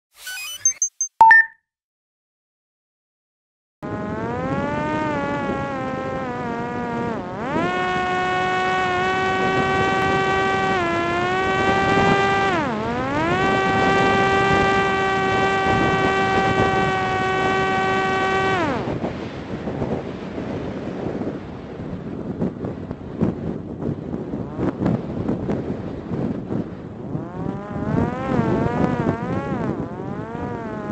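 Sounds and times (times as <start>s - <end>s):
electric motor and propeller buzzing: 3.8s - 30.9s.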